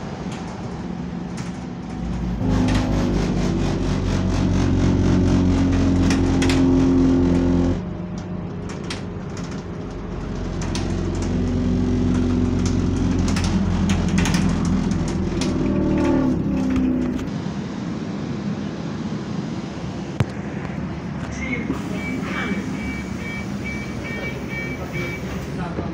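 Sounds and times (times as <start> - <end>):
bus engine and cooling fan drone: 0.0 - 25.9
interior rattles clicking: 8.1 - 17.3.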